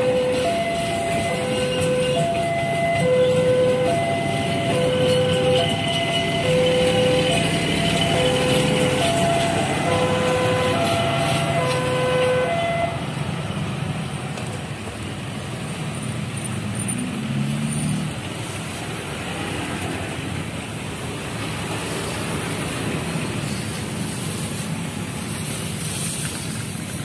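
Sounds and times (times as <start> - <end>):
level-crossing siren melody: 0.0 - 13.0
train coaches rumbling on rails: 0.0 - 27.0.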